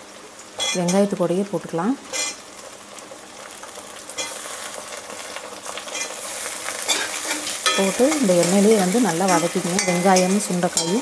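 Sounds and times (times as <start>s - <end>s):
berries and shallots sizzling in oil: 0.0s - 11.0s
ladle stirring in metal pan: 5.9s - 11.0s.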